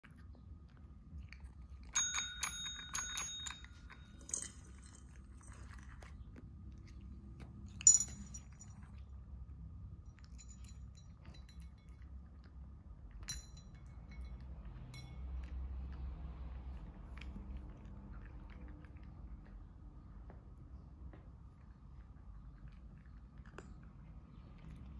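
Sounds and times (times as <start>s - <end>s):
kibble clinking against bowl: 1.2s - 9.1s, 10.1s - 16.0s
cat crunching dry kibble: 2.7s - 9.2s.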